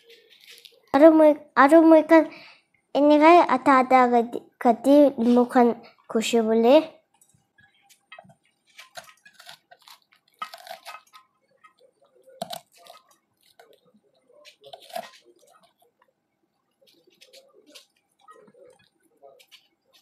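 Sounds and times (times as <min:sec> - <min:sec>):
knife cutting chillies on board: 0:08.2 - 0:11.8, 0:12.4 - 0:13.8, 0:14.4 - 0:15.8.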